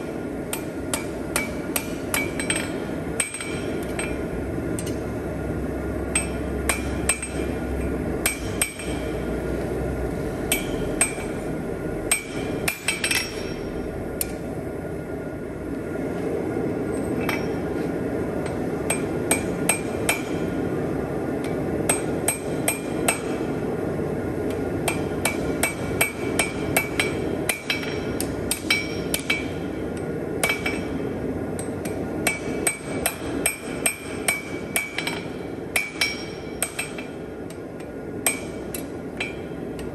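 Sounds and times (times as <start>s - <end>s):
steady background noise: 0.0s - 39.9s
hammer ringing on anvil: 0.5s - 4.2s, 6.1s - 7.6s, 8.2s - 9.1s, 10.5s - 11.4s, 12.1s - 14.3s, 17.2s - 17.7s, 24.9s - 29.6s, 30.4s - 31.0s, 31.6s - 37.2s.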